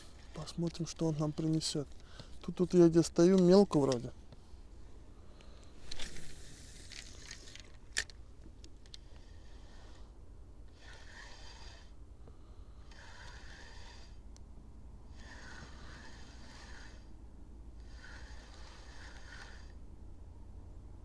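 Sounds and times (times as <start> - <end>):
fishing reel gears whirring: 9.0 - 10.1, 10.7 - 12.0, 12.8 - 14.2, 15.1 - 17.1, 17.8 - 19.8.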